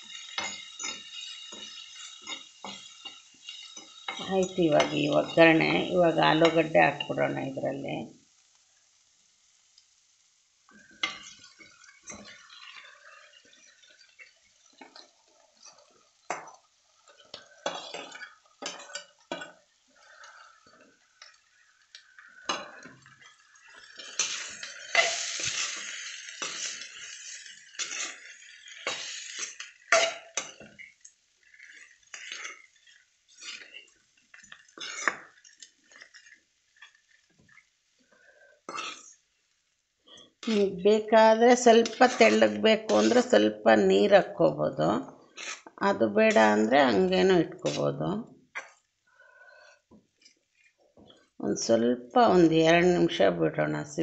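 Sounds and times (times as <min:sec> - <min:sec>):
metal spatula scraping a pan: 0:00.0 - 0:07.4, 0:10.7 - 0:39.3, 0:40.1 - 0:44.1, 0:45.1 - 0:48.0.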